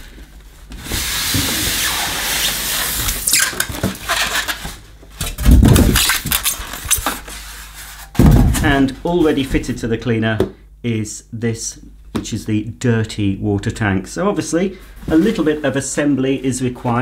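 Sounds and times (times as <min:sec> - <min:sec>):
polystyrene and cardboard rustling: 0:00.0 - 0:04.8, 0:05.4 - 0:08.6
loud heavy bump: 0:08.2 - 0:08.8.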